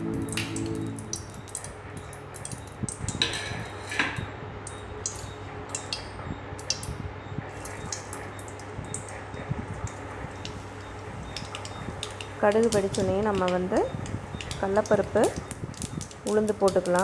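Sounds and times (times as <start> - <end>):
low hum: 0.0 - 2.0
hot oil crackling and popping: 0.0 - 17.0.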